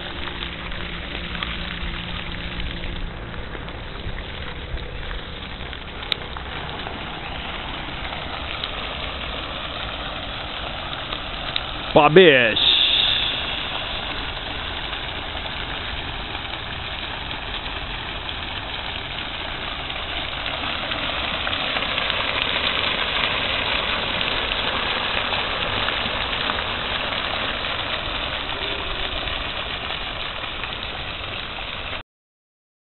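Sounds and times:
fountain jets splashing into basin: 0.0 - 32.0.

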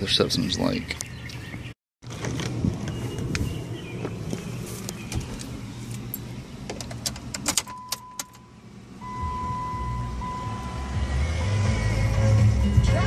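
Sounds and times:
high electronic tone: 9.0 - 11.2.

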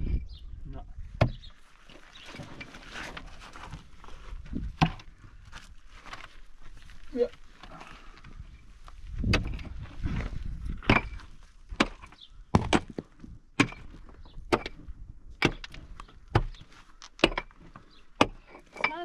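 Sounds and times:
crumbling earth scrape: 1.5 - 12.3
hand tool striking earth wall: 9.2 - 19.0.

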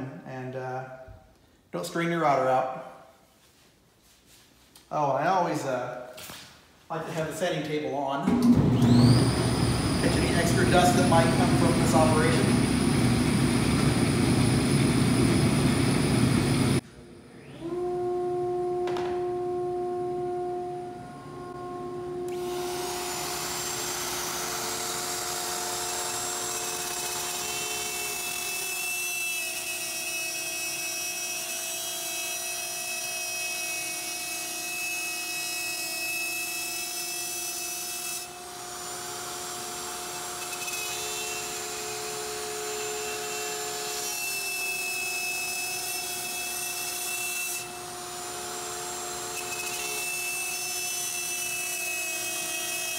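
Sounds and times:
router cutting wood: 8.2 - 16.8, 21.5 - 52.9
router motor whine: 8.6 - 19.2, 20.2 - 52.9.

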